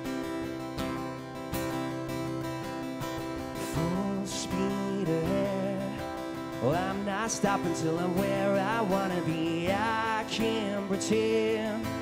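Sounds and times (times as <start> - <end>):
acoustic guitar strumming: 0.0 - 12.0
man singing: 3.6 - 12.0.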